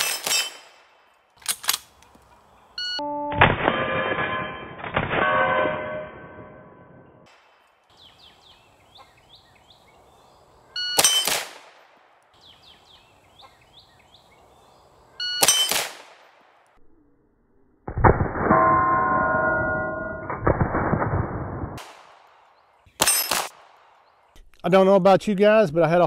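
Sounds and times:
steel target ringing: 0:03.2 - 0:07.2, 0:18.3 - 0:20.4
rifle shots: 0:10.9 - 0:12.0, 0:15.4 - 0:16.4, 0:23.0 - 0:23.8.

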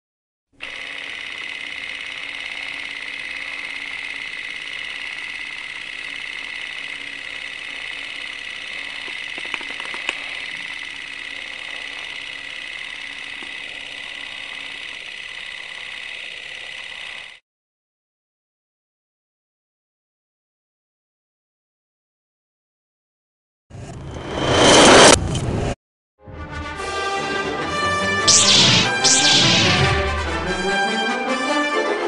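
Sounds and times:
mechanical whirring: 0:00.6 - 0:17.4, 0:28.2 - 0:30.6.

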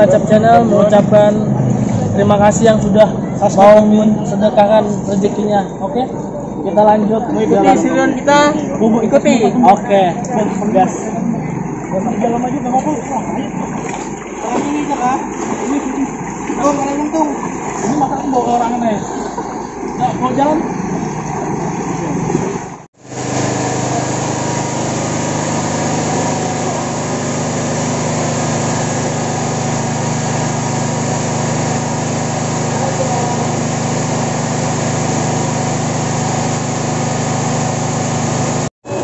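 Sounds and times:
voices: 0:00.0 - 0:22.5, 0:23.4 - 0:38.1
small petrol engine running: 0:23.1 - 0:39.0.

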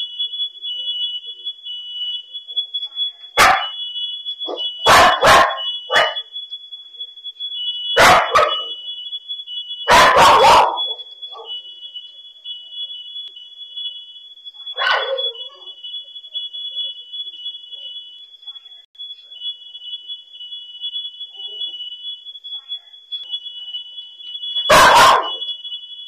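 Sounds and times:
smoke alarm beeping: 0:00.0 - 0:26.0
dog barking: 0:03.4 - 0:03.8, 0:04.4 - 0:06.3, 0:08.0 - 0:08.8, 0:09.8 - 0:11.6, 0:14.8 - 0:15.8, 0:24.6 - 0:25.5.

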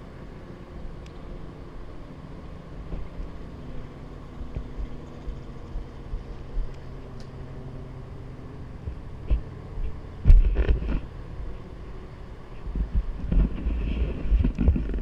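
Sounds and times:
distant traffic hum: 0:00.0 - 0:15.0
wind buffeting microphone: 0:12.6 - 0:15.0.

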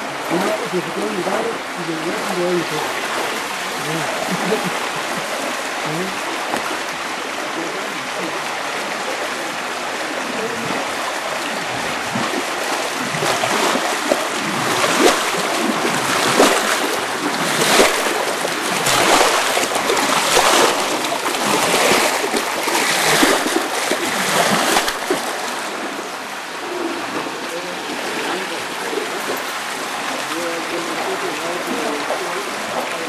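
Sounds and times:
water rushing along channel: 0:00.0 - 0:33.0
pole splashing through water: 0:10.2 - 0:26.1.

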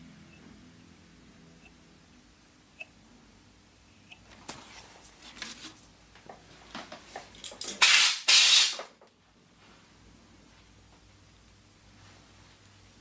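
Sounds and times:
short hissing spray bursts: 0:07.8 - 0:08.8.

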